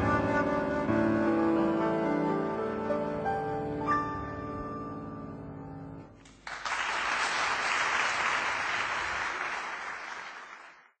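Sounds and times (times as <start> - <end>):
audience applause: 6.3 - 11.0.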